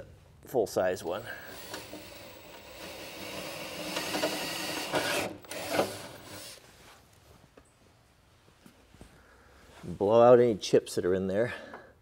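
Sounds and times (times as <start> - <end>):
power drill cutting metal: 1.2 - 6.6.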